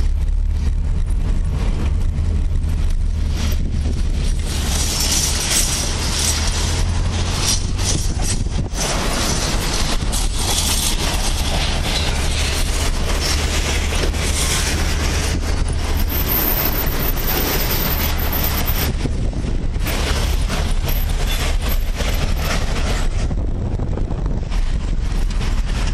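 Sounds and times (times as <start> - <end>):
road noise hiss: 0.0 - 25.9
vehicle engine rumble: 0.0 - 25.9.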